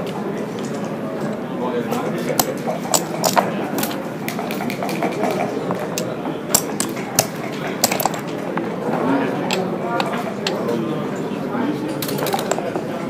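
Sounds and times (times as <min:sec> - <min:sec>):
murmur of voices: 0:00.0 - 0:13.0
game checkers clacking on board: 0:02.3 - 0:08.8, 0:09.4 - 0:10.8, 0:12.0 - 0:13.0.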